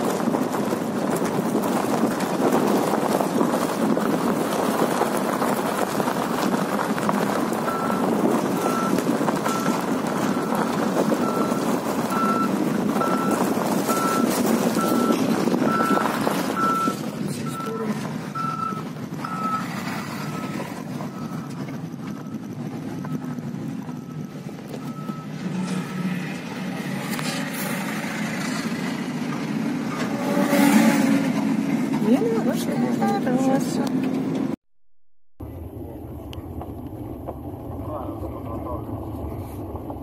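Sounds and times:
reversing alarm beeping: 7.7 - 26.0.

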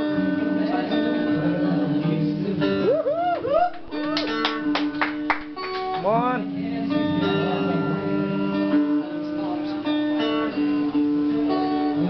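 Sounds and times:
acoustic guitar: 0.0 - 12.0
sustained keyboard notes: 5.5 - 12.0.

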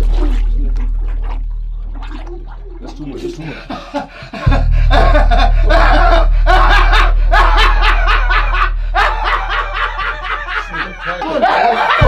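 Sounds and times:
low steady hum: 0.0 - 10.4
man laughing: 3.1 - 12.0.

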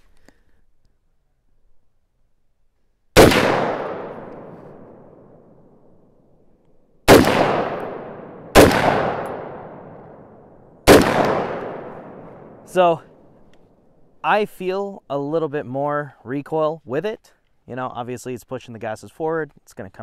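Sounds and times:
pistol shots echoing: 3.2 - 5.9, 7.0 - 13.2.

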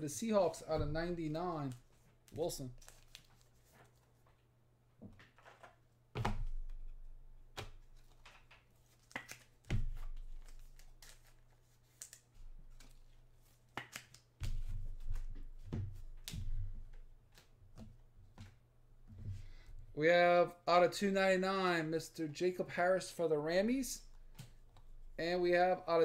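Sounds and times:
cards and packaging rustling: 1.0 - 4.3, 7.7 - 17.5.

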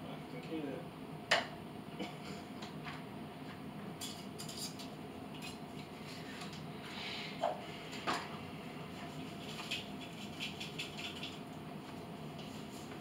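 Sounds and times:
kitchen items clicking and rustling: 9.4 - 11.4.

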